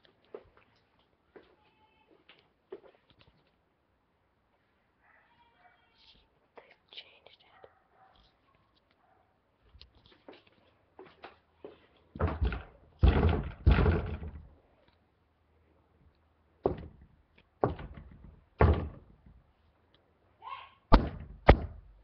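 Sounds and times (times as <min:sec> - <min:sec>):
pounding on a door: 0:12.2 - 0:14.5, 0:16.6 - 0:17.0, 0:17.6 - 0:19.1, 0:20.9 - 0:21.9.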